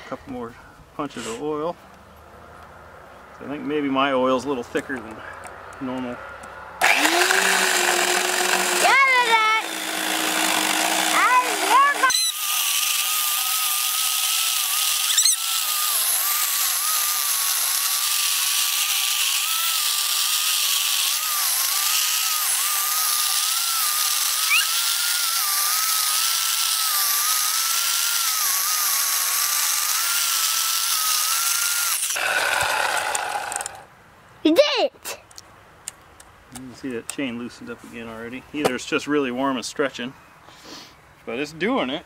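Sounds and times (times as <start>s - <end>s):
electric chainsaw cutting log: 6.8s - 33.9s.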